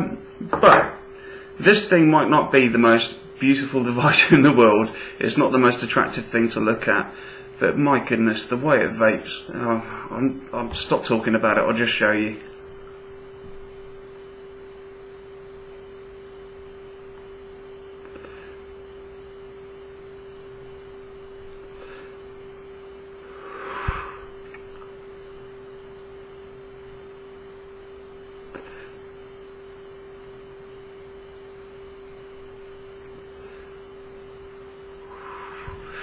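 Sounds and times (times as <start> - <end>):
steady hum: 0.0 - 36.0
person vaping breaths: 1.1 - 1.6, 7.1 - 7.6, 23.2 - 24.4, 35.0 - 36.0
long exhale of vapour: 23.2 - 24.5, 35.0 - 36.0.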